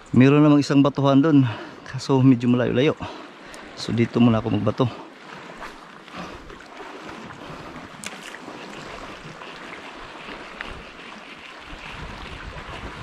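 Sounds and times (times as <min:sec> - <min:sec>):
sea washing against rocks: 0:03.4 - 0:13.0
wind buffeting microphone: 0:06.2 - 0:13.0.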